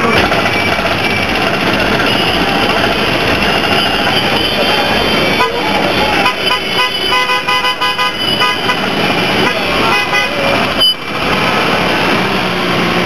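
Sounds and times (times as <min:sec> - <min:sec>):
vehicle horns honking: 0:00.0 - 0:11.1
road traffic noise: 0:00.0 - 0:13.0.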